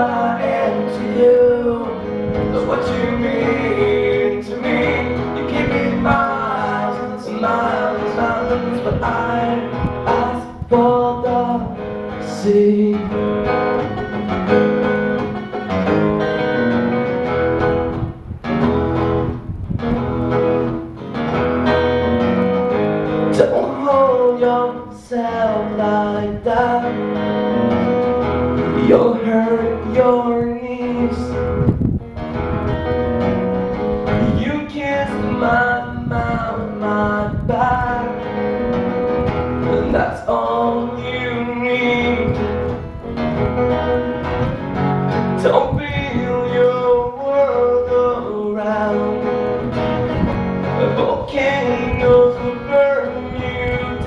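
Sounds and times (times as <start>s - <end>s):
man singing: 0.0s - 14.0s, 23.3s - 27.6s, 28.6s - 31.6s, 34.1s - 38.8s, 39.6s - 42.9s, 45.3s - 49.8s, 50.8s - 54.0s
acoustic guitars playing: 0.0s - 54.0s.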